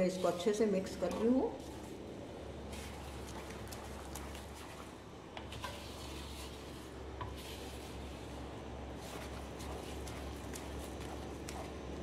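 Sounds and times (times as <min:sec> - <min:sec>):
steady low hum: 0:00.0 - 0:12.0
wooden spatula scraping metal pan: 0:05.4 - 0:08.2.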